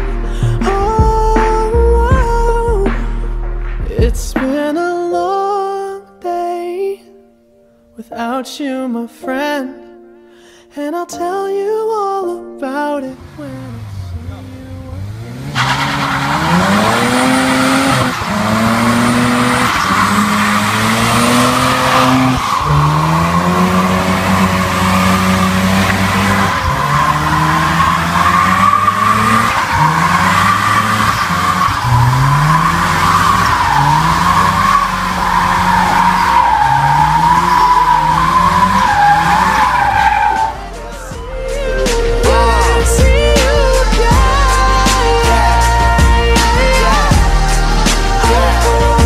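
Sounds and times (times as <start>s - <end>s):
rotary engine revving: 13.3s - 41.1s
tyres squealing: 13.6s - 49.0s.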